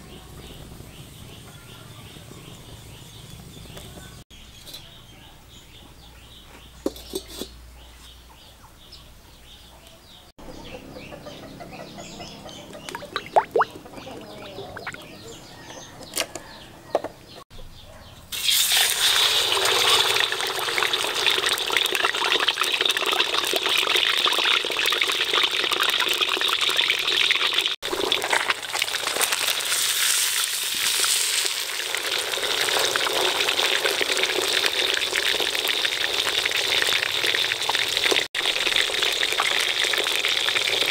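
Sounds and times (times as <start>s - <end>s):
fish sizzling in hot oil: 18.3s - 40.9s.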